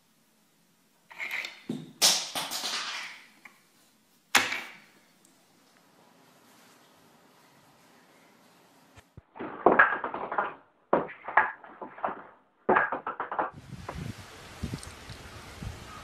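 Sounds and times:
steady outdoor hiss: 0:00.0 - 0:09.3, 0:13.6 - 0:16.0.

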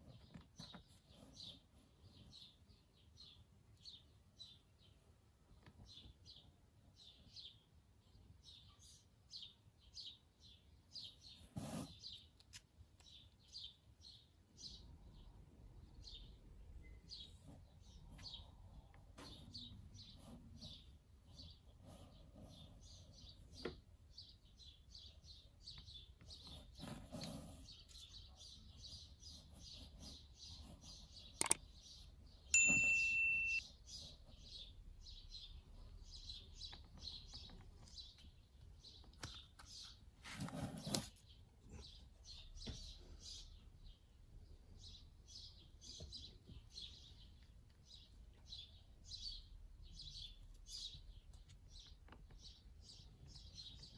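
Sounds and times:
bird chirping: 0:00.0 - 0:53.9
sharp click: 0:31.4 - 0:31.6
loud steady tone: 0:32.6 - 0:33.6.

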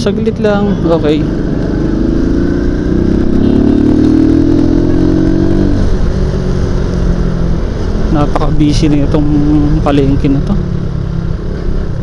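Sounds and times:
wind rumble: 0:00.0 - 0:12.0
scooter engine revving: 0:01.1 - 0:06.2.

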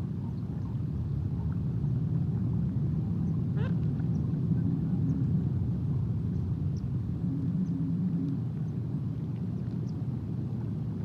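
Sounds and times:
low outdoor rumble: 0:00.0 - 0:11.0
faint bird calls: 0:03.2 - 0:05.2.

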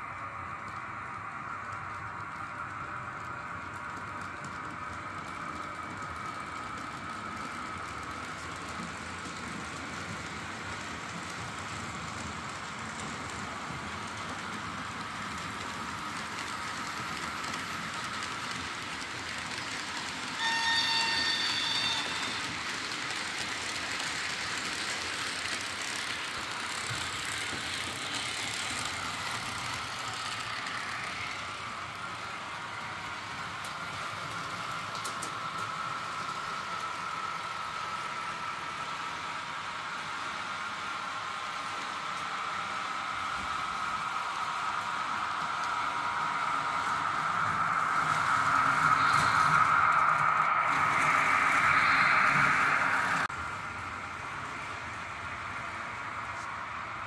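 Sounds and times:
model train rolling on track: 0:00.0 - 0:57.0
train horn blast: 0:20.4 - 0:22.4.

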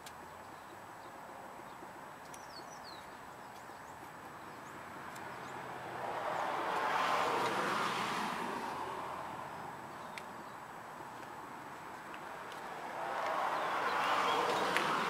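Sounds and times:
bird chirps: 0:00.4 - 0:05.6, 0:09.9 - 0:10.7.

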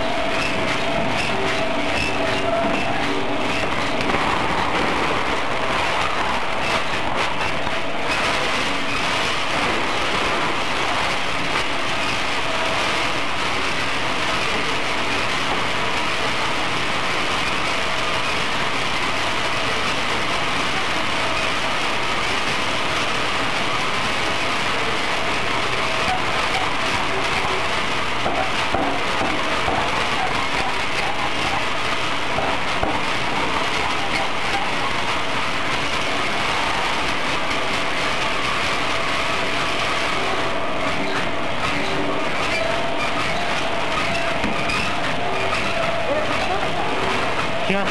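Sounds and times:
machine running: 0:00.0 - 0:47.9
peanuts rattling in rotating drum: 0:00.0 - 0:47.9.

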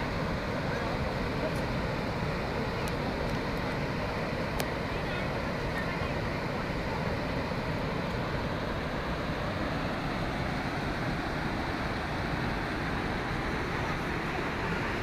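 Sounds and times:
water rushing through spillway: 0:00.0 - 0:15.0.

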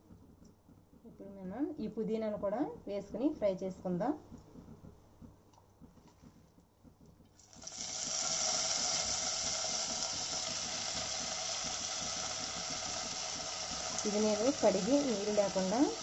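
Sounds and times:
leaves sizzling in hot oil: 0:07.4 - 0:16.0.

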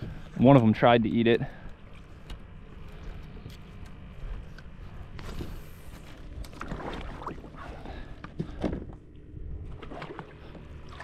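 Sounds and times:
wind rumble on microphone: 0:04.1 - 0:10.6
water splashes: 0:06.4 - 0:08.1, 0:09.7 - 0:11.0
kayak gear knocks and clunks: 0:08.2 - 0:09.0.

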